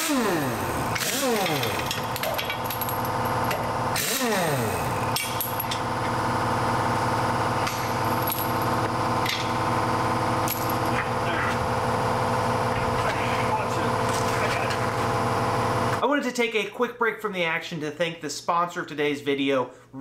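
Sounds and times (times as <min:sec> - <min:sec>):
pneumatic impact wrench spinning: 0:00.0 - 0:09.6
tools clanking on concrete: 0:01.0 - 0:03.7.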